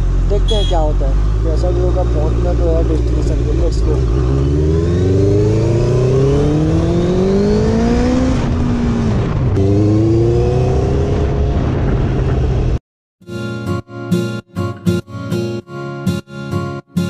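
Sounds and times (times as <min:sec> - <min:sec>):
motorcycle engine accelerating: 0:00.0 - 0:12.8.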